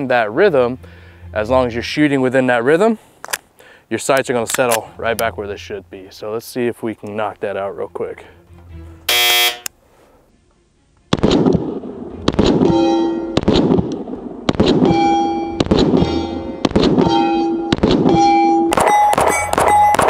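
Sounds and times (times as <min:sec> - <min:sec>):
pistol shots: 0:11.1 - 0:12.8, 0:13.4 - 0:20.0
steel plate ringing: 0:14.9 - 0:20.0.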